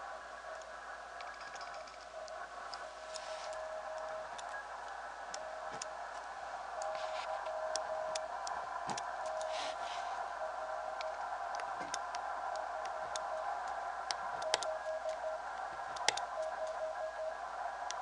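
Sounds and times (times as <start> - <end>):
radio band hiss: 0.0 - 18.0
morse code tone: 6.7 - 11.5, 12.3 - 17.6
sharp ticks: 11.0 - 15.2, 16.0 - 16.8.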